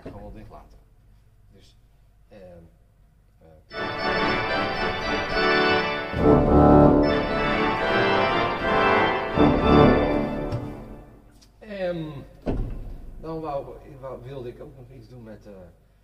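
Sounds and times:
pipe organ chords: 0:03.7 - 0:11.3.

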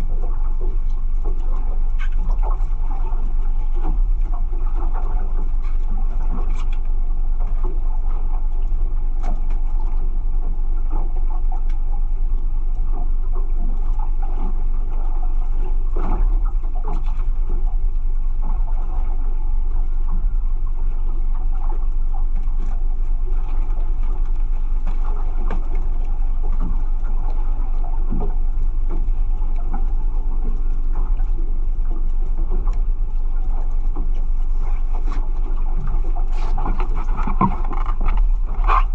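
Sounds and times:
outboard motor running: 0:00.0 - 0:38.9.

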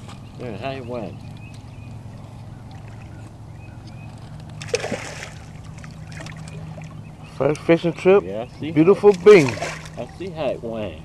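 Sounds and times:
steady low hum: 0:00.0 - 0:11.0
fish splashing at water surface: 0:04.6 - 0:07.0, 0:09.1 - 0:10.2.

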